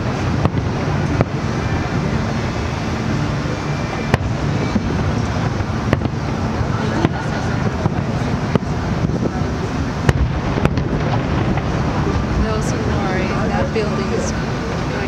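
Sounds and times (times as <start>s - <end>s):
distant firework bangs: 0.0s - 1.7s, 4.0s - 9.4s, 10.0s - 12.6s
low rumble of firework bursts: 0.0s - 15.0s.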